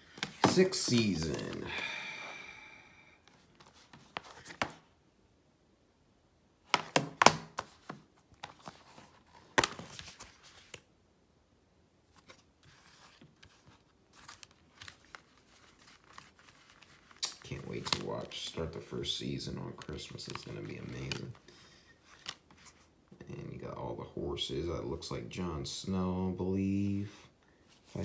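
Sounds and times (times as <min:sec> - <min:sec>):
rustling: 0:12.1 - 0:18.3.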